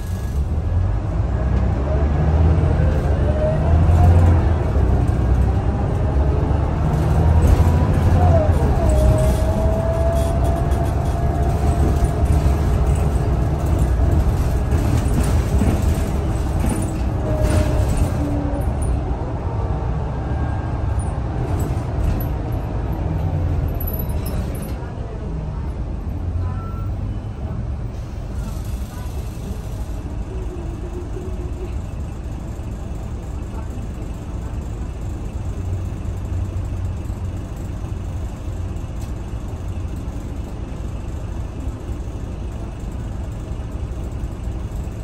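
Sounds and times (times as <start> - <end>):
bus engine rumble: 0.0 - 45.0.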